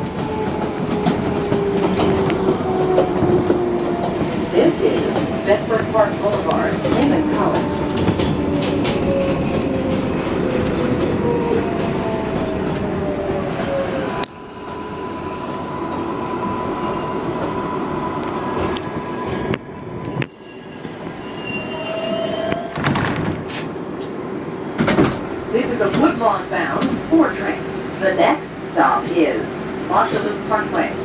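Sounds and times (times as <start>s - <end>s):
subway train rumbling: 0.0s - 31.0s
train whine: 0.0s - 31.0s
high wheel squeal: 20.3s - 22.7s.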